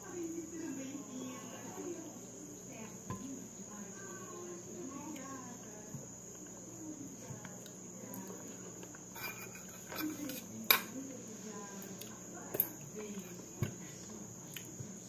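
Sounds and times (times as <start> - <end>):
chewing and handling food: 11.8 - 15.0.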